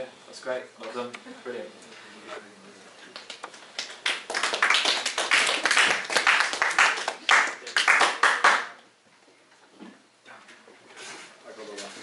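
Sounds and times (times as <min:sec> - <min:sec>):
group applauding: 0:03.1 - 0:08.8.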